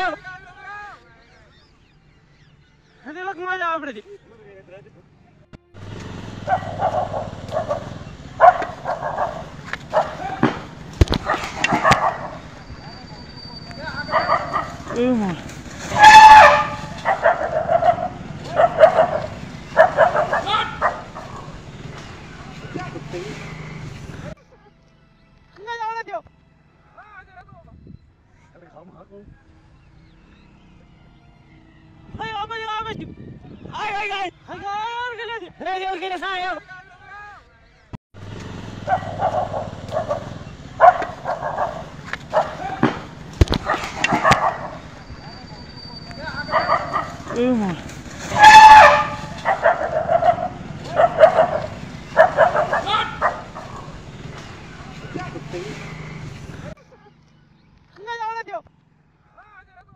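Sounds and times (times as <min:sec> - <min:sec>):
puppies barking and yapping: 0:06.4 - 0:15.0, 0:15.8 - 0:21.8, 0:38.7 - 0:47.5, 0:48.2 - 0:56.7
puppy high drawn-out cry: 0:15.9 - 0:18.1, 0:48.3 - 0:51.6.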